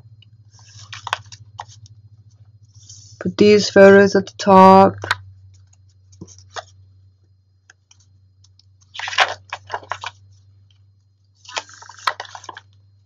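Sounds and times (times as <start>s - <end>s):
paper pages rustling: 0.5s - 1.9s, 5.0s - 6.8s, 8.8s - 10.4s, 11.4s - 12.8s.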